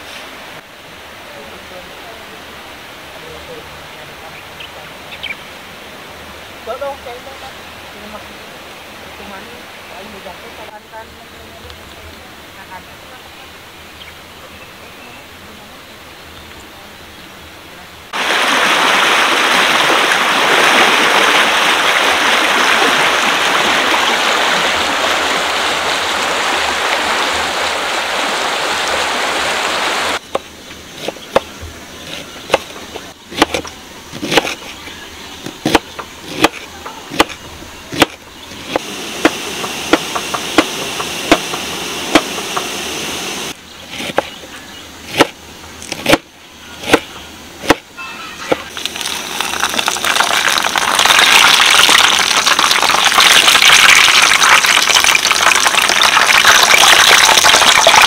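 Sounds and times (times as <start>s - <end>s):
river rushing: 18.1s - 30.9s, 38.7s - 43.6s.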